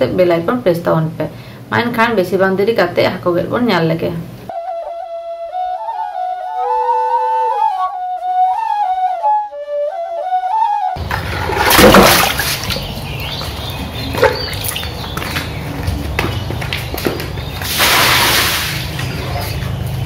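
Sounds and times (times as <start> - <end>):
flute-like melody: 4.5 - 11.0
water splashing in a metal bowl: 11.0 - 15.6, 17.6 - 19.4.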